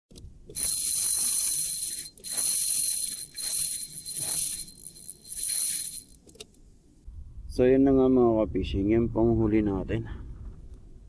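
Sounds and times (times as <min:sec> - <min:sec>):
fishing reel whirring: 0:00.5 - 0:06.2.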